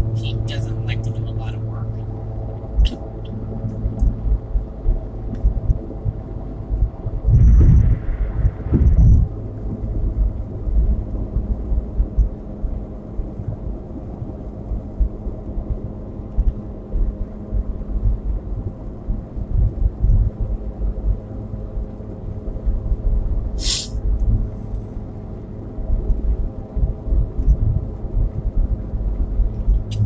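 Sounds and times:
car road and engine rumble: 0.0 - 30.0
constant low hum: 0.0 - 30.0
brief hiss: 23.6 - 24.0.

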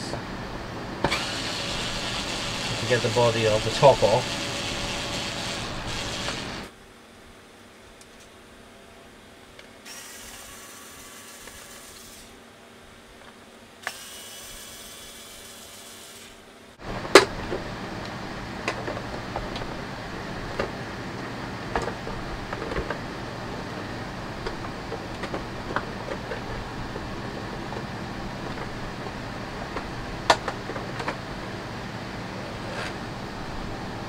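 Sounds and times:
electric screwdriver whirring: 1.0 - 6.7, 9.9 - 12.3, 13.8 - 16.4.

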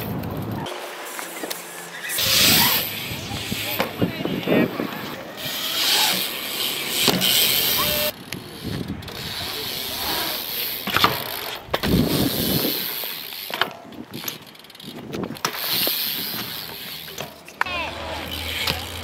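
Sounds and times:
bike tyres rolling on concrete: 0.0 - 19.0
wind on microphone: 2.2 - 5.8, 11.7 - 12.8.

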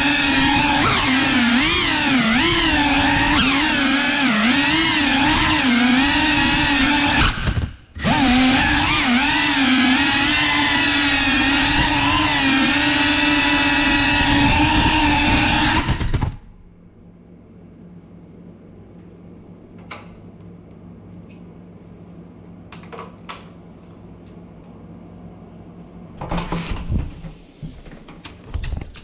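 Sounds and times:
drone motors buzzing whine: 0.0 - 16.6.

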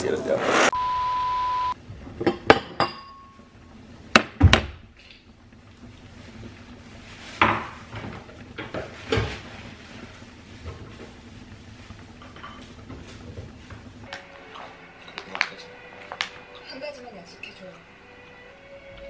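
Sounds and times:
dishes and cupboards clattering: 2.1 - 3.2, 7.4 - 9.5, 12.2 - 13.5.

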